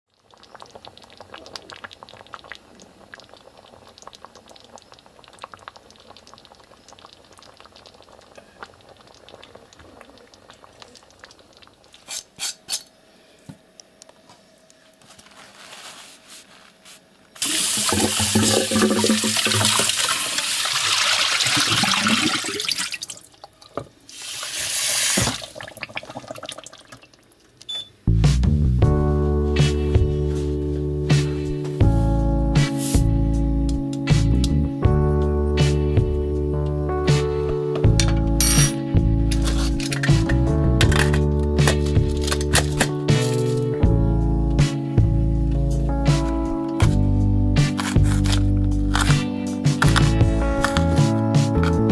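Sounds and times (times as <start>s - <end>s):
water pouring into metal pot: 17.4s - 27.2s
music: 28.0s - 51.9s.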